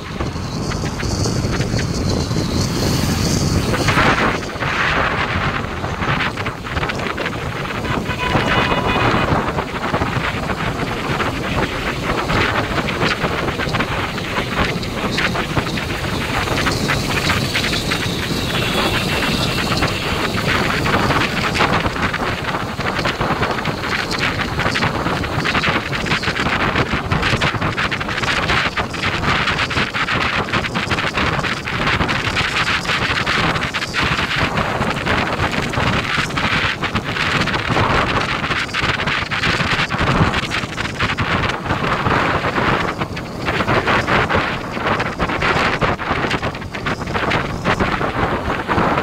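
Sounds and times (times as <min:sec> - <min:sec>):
road and traffic noise: 0:00.0 - 0:49.0
wind buffeting microphone: 0:00.0 - 0:49.0.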